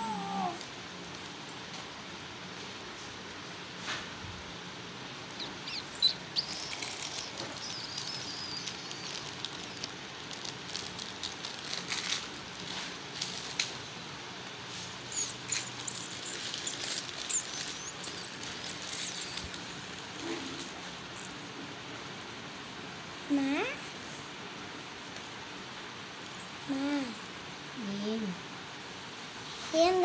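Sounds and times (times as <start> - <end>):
small birds chirping: 5.0 - 11.3, 14.7 - 21.5.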